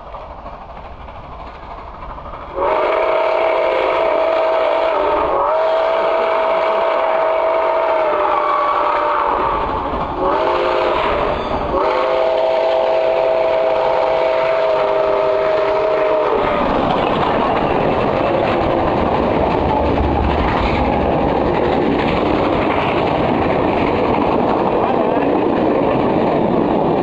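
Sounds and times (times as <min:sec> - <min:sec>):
train cars rolling past: 0:00.0 - 0:27.0
steam locomotive chime whistle: 0:02.5 - 0:16.5.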